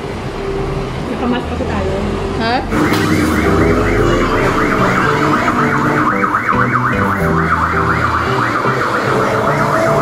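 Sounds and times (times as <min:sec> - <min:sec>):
music with siren-like warble: 0:02.3 - 0:10.0.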